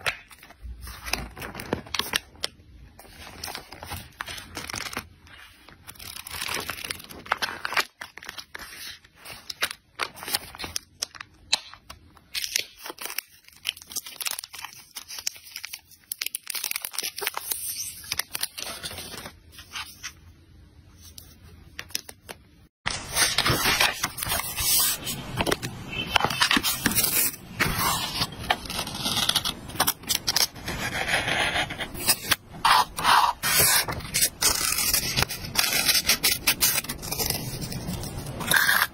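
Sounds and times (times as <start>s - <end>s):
notebook pages flipping: 0.0s - 11.8s, 21.0s - 30.5s
stickers scraping and peeling: 23.2s - 38.9s.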